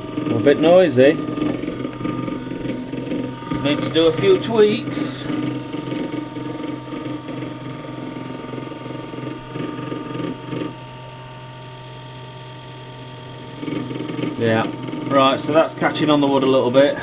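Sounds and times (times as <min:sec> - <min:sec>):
fan blade rattling: 0:00.0 - 0:10.8
fan humming: 0:00.0 - 0:17.0.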